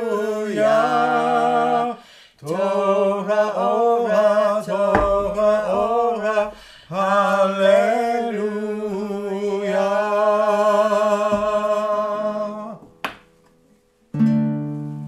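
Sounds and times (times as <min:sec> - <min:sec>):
classical guitar chord strummed: 0:14.1 - 0:15.0.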